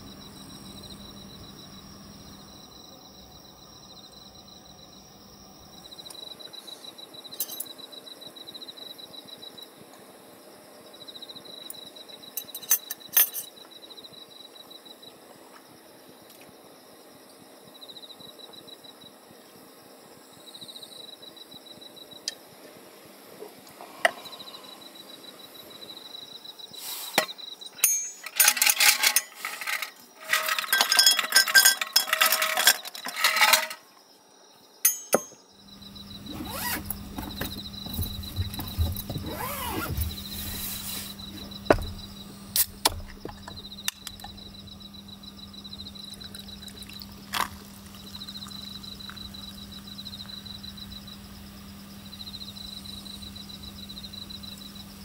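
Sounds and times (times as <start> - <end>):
insects chirping: 0.0 - 55.0
ice cubes clinking into glass: 27.9 - 33.8.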